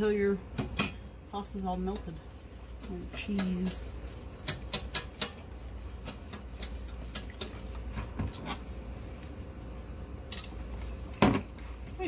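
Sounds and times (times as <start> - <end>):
steady low hum: 0.0 - 12.0
whisk clicking against saucepan: 2.8 - 7.8.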